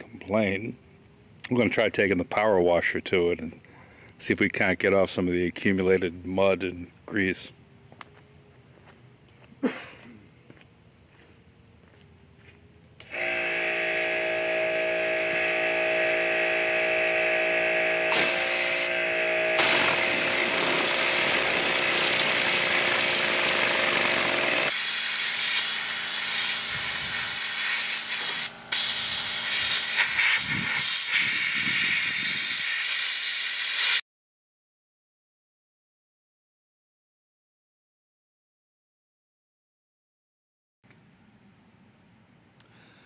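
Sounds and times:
pressure washer pump hum: 0:13.0 - 0:33.8
pressure washer jet hissing: 0:13.2 - 0:34.0.

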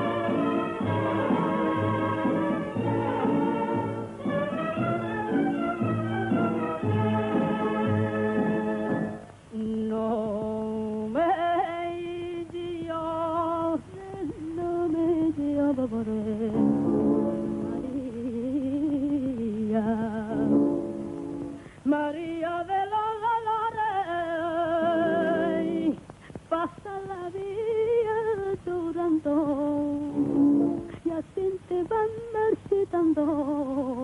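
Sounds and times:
voice singing wordless melody: 0:21.8 - 0:34.0.

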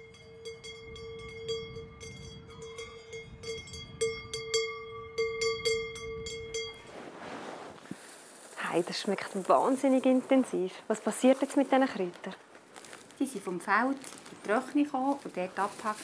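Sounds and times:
cowbell clanking: 0:00.0 - 0:06.9.

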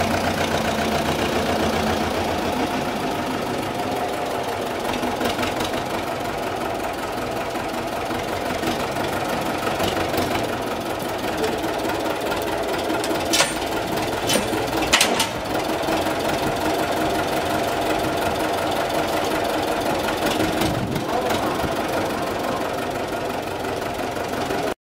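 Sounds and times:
diesel tractor engine knocking: 0:00.0 - 0:24.8
sharp metal clanks: 0:13.0 - 0:15.4.

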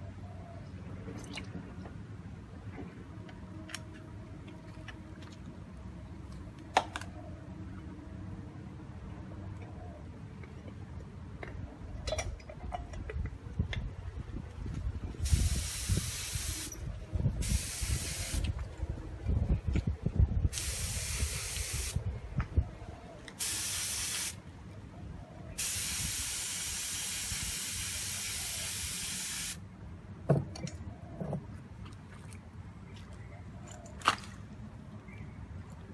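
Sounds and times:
spray gun hissing: 0:15.2 - 0:16.8, 0:17.4 - 0:18.4, 0:20.5 - 0:22.0, 0:23.4 - 0:24.4, 0:25.6 - 0:29.6.

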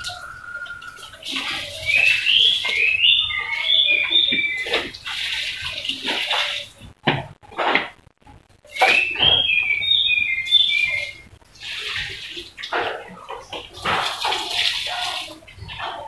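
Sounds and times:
bird chirps: 0:00.0 - 0:05.0, 0:08.7 - 0:11.3.

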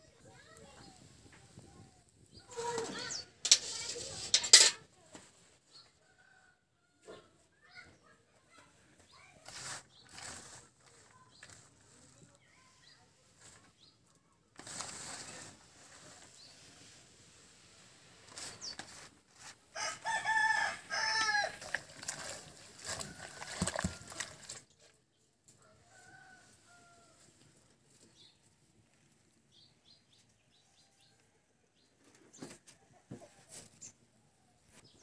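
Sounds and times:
greens rustling in a metal bucket: 0:00.1 - 0:05.8, 0:09.0 - 0:29.6
rooster crowing: 0:19.8 - 0:21.6.

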